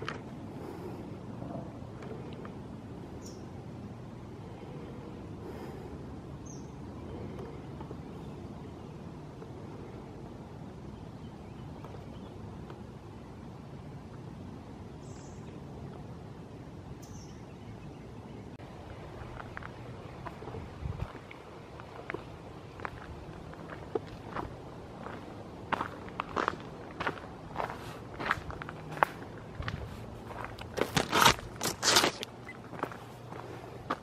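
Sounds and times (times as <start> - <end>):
wind on microphone: 20.2 - 21.4.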